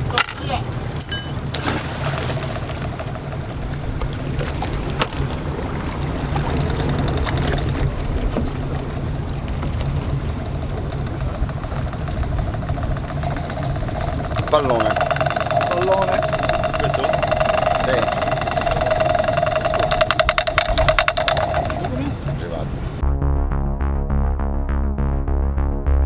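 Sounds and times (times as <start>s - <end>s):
boat engine idling: 0.0s - 23.0s
wind and water hiss: 1.4s - 23.0s.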